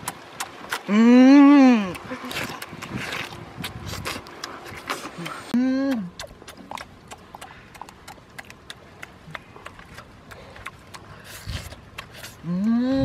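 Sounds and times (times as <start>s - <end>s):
person chewing with smacking clicks: 0.0s - 1.0s, 1.8s - 13.0s.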